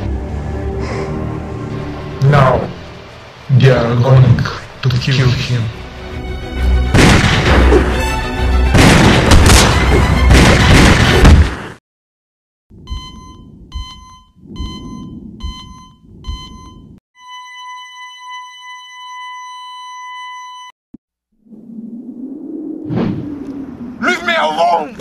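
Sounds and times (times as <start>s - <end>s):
trailer music with heavy hits: 5.8s - 11.2s
heart monitor beeps: 12.8s - 20.7s
flatline tone: 12.9s - 20.7s
low rumble: 21.3s - 24.3s.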